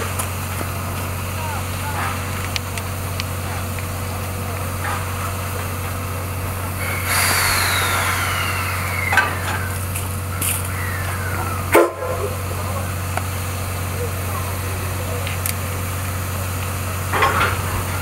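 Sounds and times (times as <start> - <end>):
railway turntable rotating: 0.0 - 18.0
steady low hum: 0.0 - 18.0
steam hiss: 6.5 - 13.8
metallic squeal falling in pitch: 6.8 - 9.8
loud metal clunk: 17.1 - 18.0.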